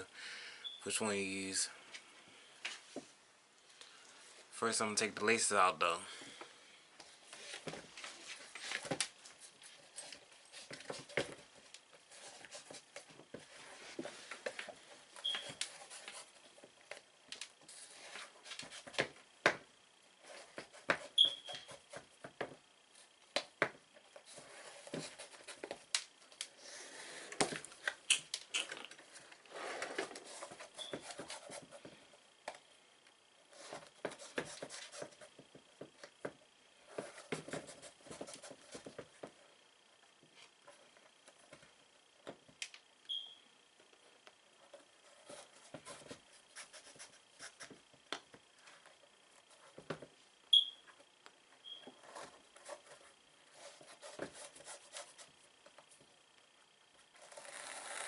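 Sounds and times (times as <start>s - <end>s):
shoe squeaks: 15.2s - 15.6s, 21.1s - 21.8s, 30.7s - 31.2s, 43.1s - 43.4s, 50.5s - 50.8s, 51.6s - 52.0s.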